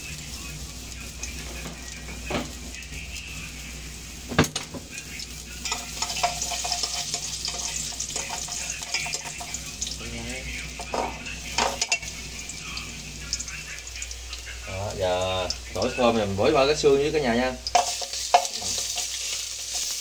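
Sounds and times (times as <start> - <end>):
garlic sizzling in hot oil: 0.0 - 20.0.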